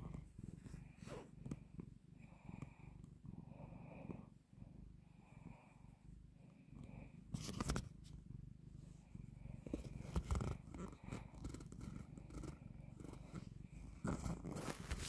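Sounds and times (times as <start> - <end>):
cat purring: 0.0 - 15.0
brief rustling scrapes: 14.1 - 15.0.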